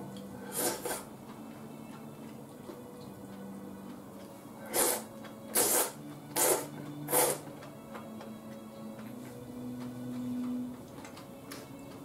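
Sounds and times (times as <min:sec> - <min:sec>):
person slurping noodles: 0:00.4 - 0:01.1, 0:04.6 - 0:07.5.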